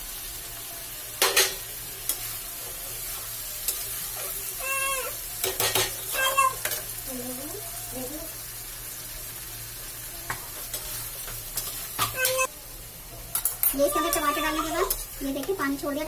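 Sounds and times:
vegetables sizzling in oil: 0:00.0 - 0:16.0
spatula clanking against a pan: 0:01.2 - 0:02.3, 0:05.4 - 0:06.9, 0:10.3 - 0:12.5, 0:13.3 - 0:15.5.

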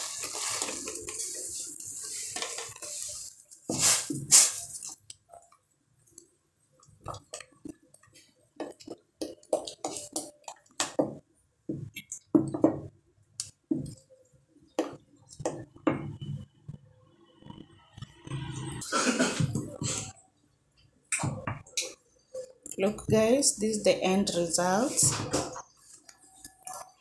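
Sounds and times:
porridge squelching: 0:00.0 - 0:12.4.

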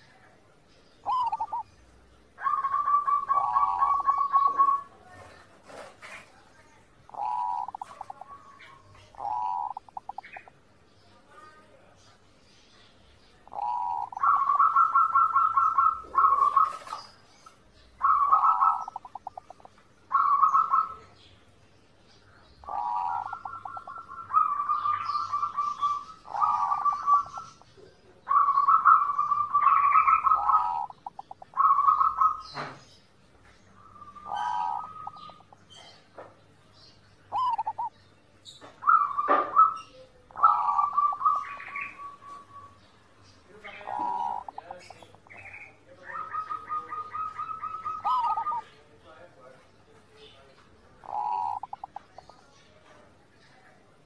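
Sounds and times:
small birds chirping: 0:00.0 - 0:54.0
dove cooing: 0:01.0 - 0:06.3, 0:07.1 - 0:10.5, 0:13.4 - 0:21.2, 0:22.6 - 0:32.7, 0:33.8 - 0:36.1, 0:37.3 - 0:43.0, 0:43.6 - 0:48.8, 0:51.0 - 0:52.5.

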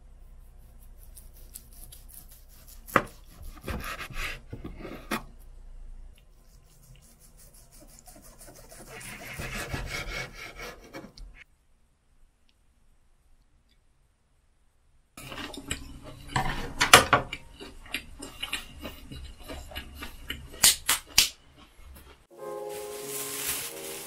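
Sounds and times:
knife sawing through meat: 0:00.6 - 0:04.4, 0:07.1 - 0:11.1.

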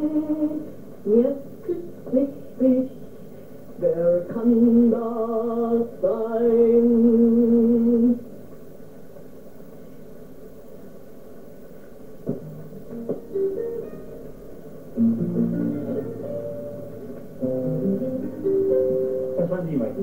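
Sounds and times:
soft instrument notes: 0:12.5 - 0:20.0.

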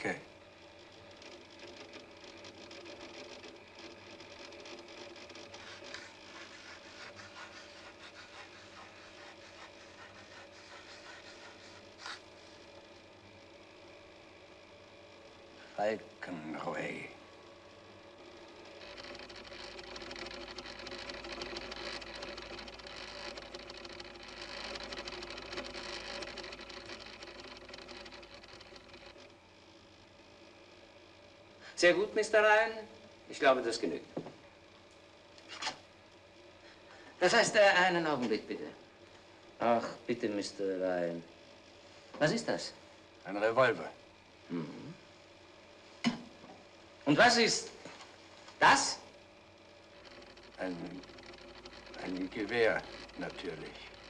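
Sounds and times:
faint steady hum: 0:00.0 - 0:54.0
chalk scratching on a blackboard: 0:05.6 - 0:12.3.

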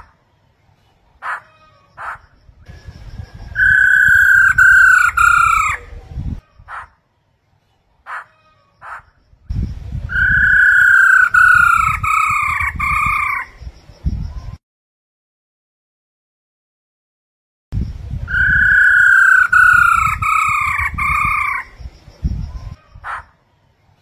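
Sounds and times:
bird whistling song: 0:02.0 - 0:06.9, 0:08.8 - 0:14.6, 0:17.8 - 0:23.2.

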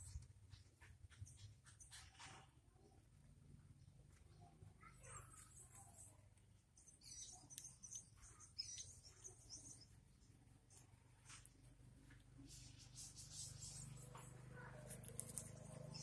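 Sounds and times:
faint high-pitched chirps: 0:03.8 - 0:16.0.

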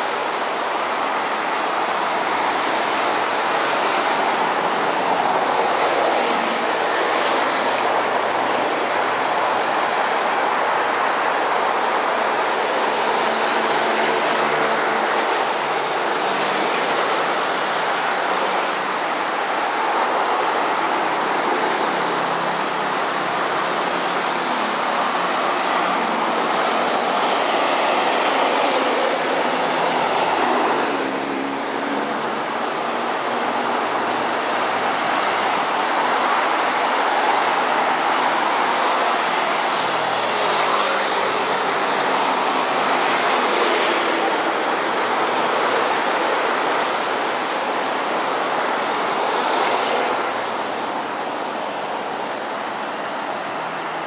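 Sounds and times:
city traffic roar: 0:00.0 - 0:54.0
elevated train running: 0:00.0 - 0:54.0.

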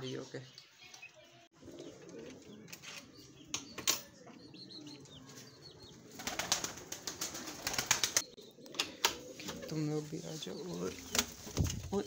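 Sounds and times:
pigeon wings flapping: 0:06.2 - 0:08.3.

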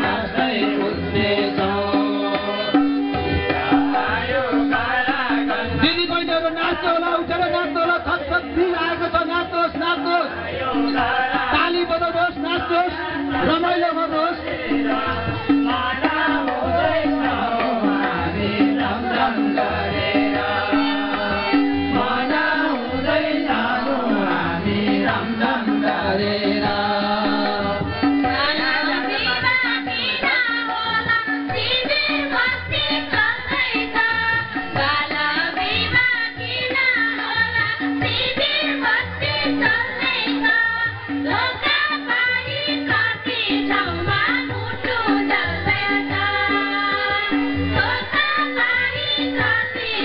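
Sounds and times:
men singing folk song: 0:00.0 - 0:30.8
hand drum beat: 0:00.0 - 0:50.0
harmonium: 0:00.0 - 0:50.0.

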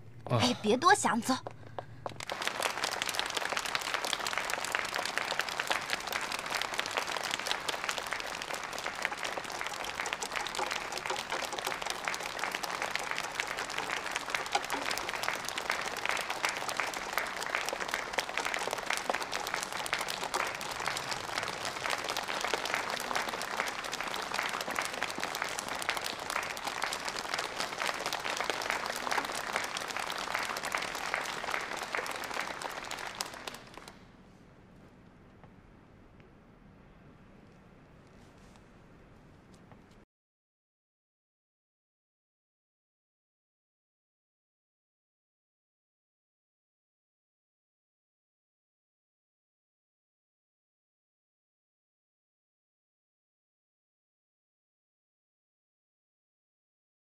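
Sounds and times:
audience applauding: 0:01.8 - 0:34.0.

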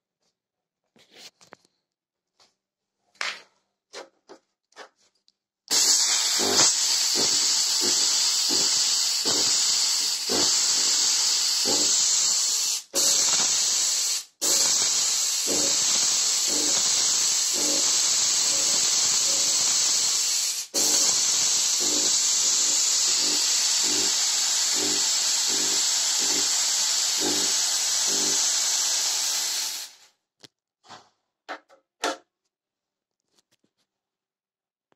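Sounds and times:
fog machine hissing: 0:05.7 - 0:30.0.

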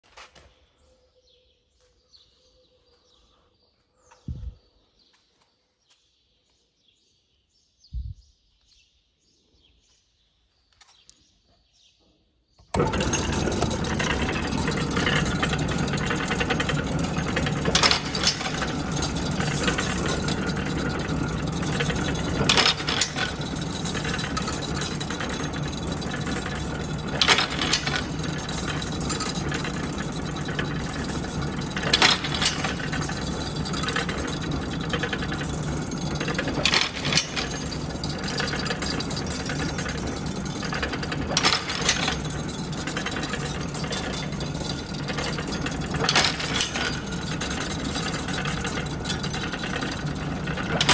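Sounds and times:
machine running steadily: 0:12.7 - 0:50.9.

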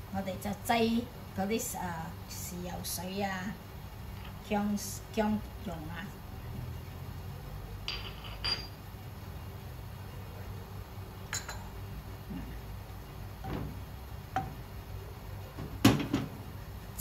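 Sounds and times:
low steady hum: 0:00.0 - 0:17.0
kitchen utensils clinking: 0:07.9 - 0:08.8.

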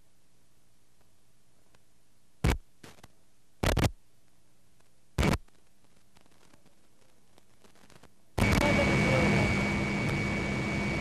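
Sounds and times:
faint steady hiss: 0:00.0 - 0:08.6.

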